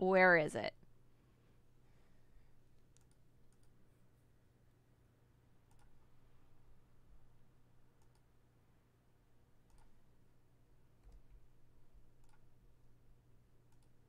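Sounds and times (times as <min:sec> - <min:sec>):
steady low hum: 0:00.0 - 0:14.0
faint clicks: 0:02.8 - 0:03.8, 0:08.0 - 0:08.3, 0:13.7 - 0:14.0.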